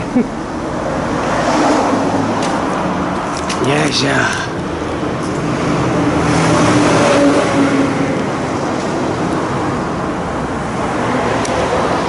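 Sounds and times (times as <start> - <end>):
car driving past: 0.7 - 2.6.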